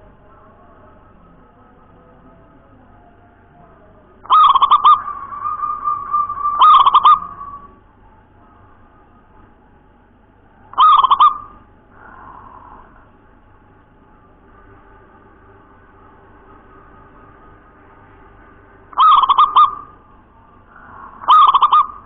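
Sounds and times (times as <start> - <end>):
dove cooing: 4.2 - 7.9, 10.7 - 13.1, 18.9 - 22.0.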